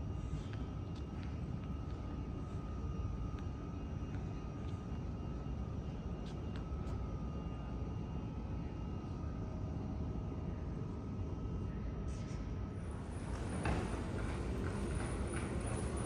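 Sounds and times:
thin steady whine: 0.0 - 16.0.

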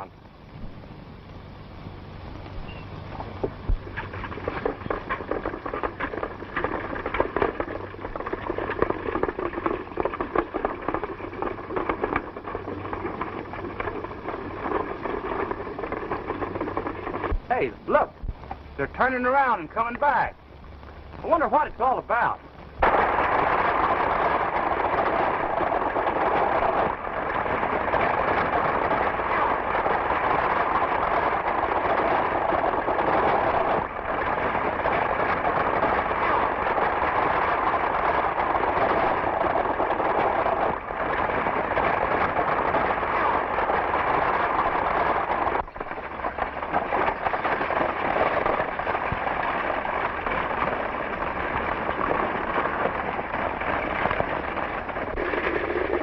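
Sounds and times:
galloping horse hooves: 2.2 - 56.0
stagecoach wheels clattering: 22.8 - 56.0.

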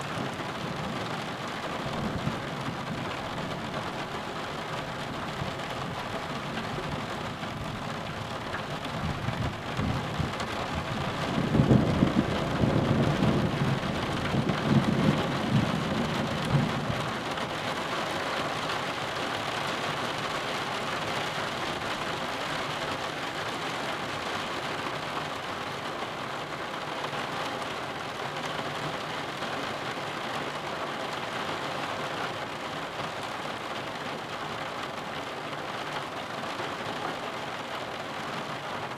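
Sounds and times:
rumble of thunder: 0.0 - 4.0, 8.8 - 17.4
rain on a roof window: 0.0 - 38.9.

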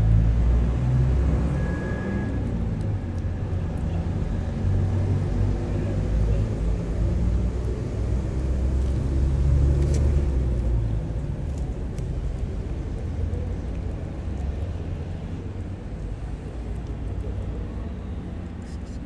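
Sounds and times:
faint clicks: 11.4 - 19.0.

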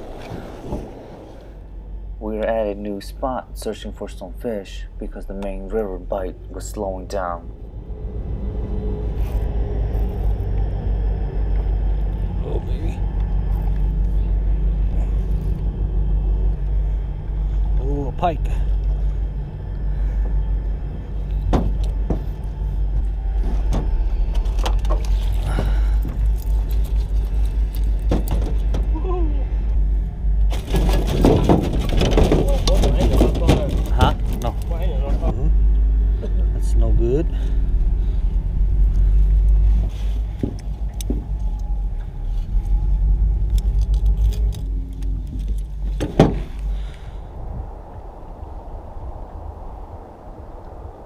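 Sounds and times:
low rumble on microphone: 0.0 - 51.0
boat motor humming: 5.4 - 47.3
fishing gear rattling and clicking: 23.6 - 29.0, 30.5 - 35.1, 42.7 - 46.2.

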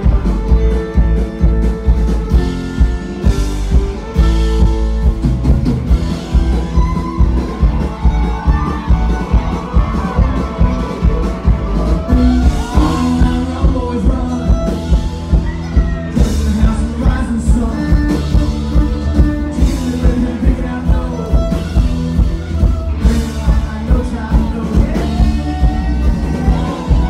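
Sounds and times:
fiddle melody: 0.0 - 27.0
live band music: 0.0 - 27.0
steady drum beat: 0.0 - 27.0.

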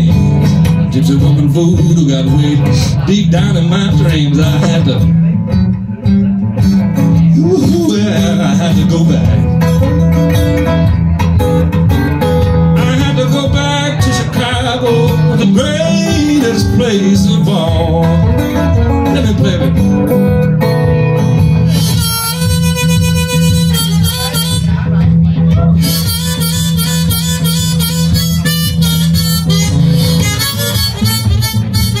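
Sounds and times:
acoustic guitar strumming: 0.0 - 32.0
harmonica playing: 21.7 - 25.0, 25.8 - 32.0.

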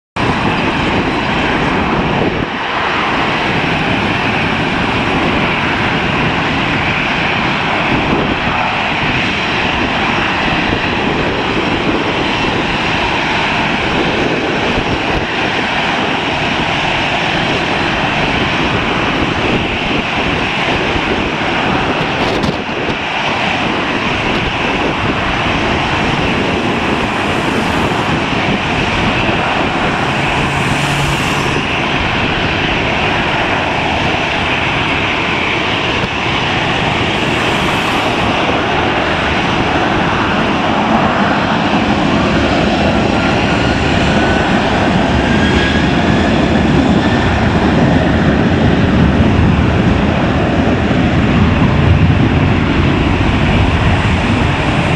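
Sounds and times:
jet engines rushing: 0.2 - 54.9.

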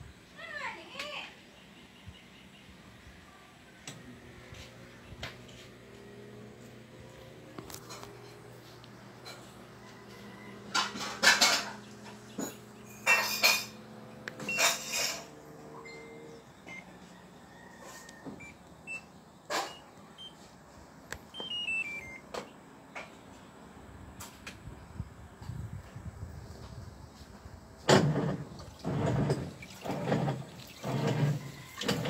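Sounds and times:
washing machine humming: 2.8 - 22.8, 27.1 - 32.0
control panel beeps: 15.8 - 16.8, 18.4 - 20.4, 21.3 - 22.6
descending run of beeps: 15.8 - 16.9, 21.3 - 22.3
washing machine clunks: 27.8 - 32.0.

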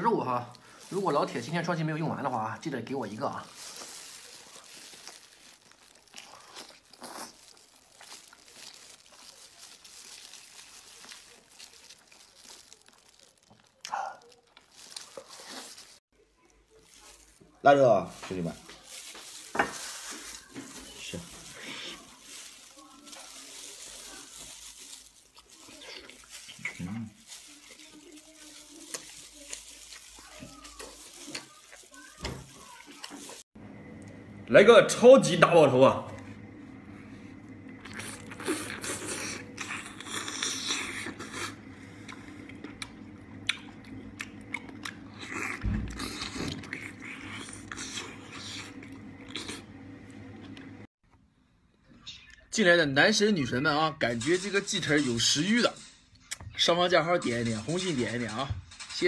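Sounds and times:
plastic glove crinkling: 0.0 - 33.6, 37.4 - 49.6, 56.6 - 58.4
biting and chewing meat: 3.4 - 16.0, 18.2 - 33.5, 37.8 - 49.6
man chewing and lip-smacking: 37.8 - 49.6.

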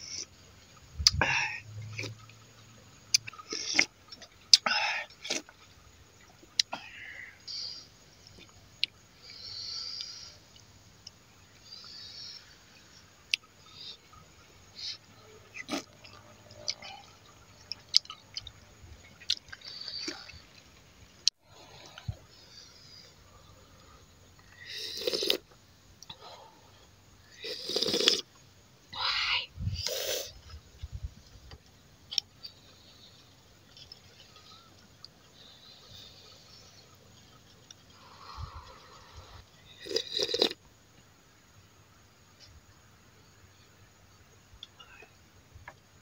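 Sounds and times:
chewing: 3.1 - 5.6, 15.5 - 22.2, 33.3 - 40.6
man slurping soup: 24.6 - 25.4, 27.4 - 28.3, 29.7 - 30.4, 38.0 - 40.6.

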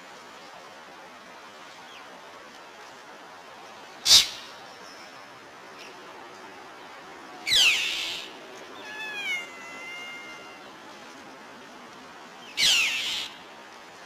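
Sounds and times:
cat meowing: 8.8 - 10.8.

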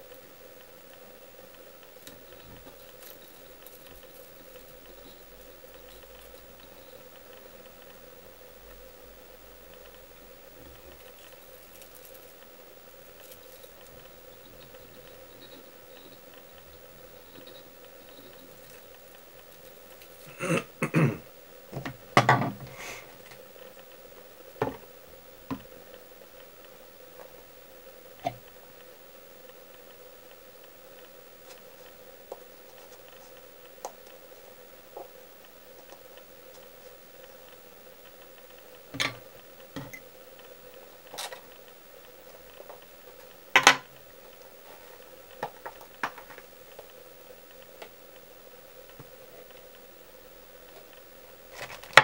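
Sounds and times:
faint steady hum: 0.0 - 52.0
small tools clicking and tapping: 38.9 - 40.0.

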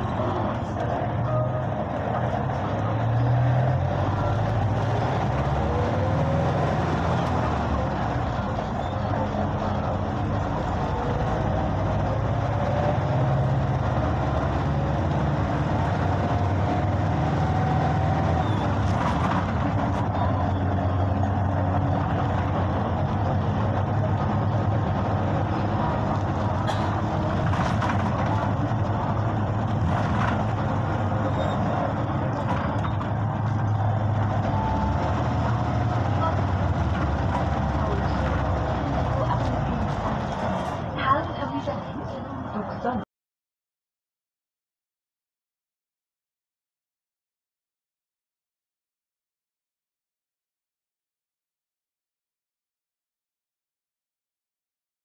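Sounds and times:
bus engine humming: 0.0 - 43.0
road and tyre noise: 0.0 - 43.1.

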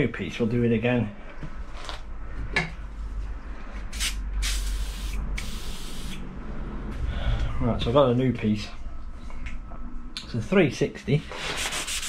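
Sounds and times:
aerosol spray hissing: 4.0 - 6.2.

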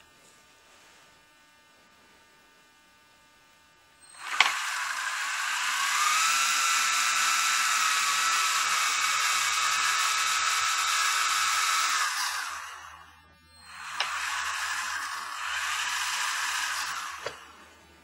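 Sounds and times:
helicopter rotor motors whining: 4.2 - 17.8.

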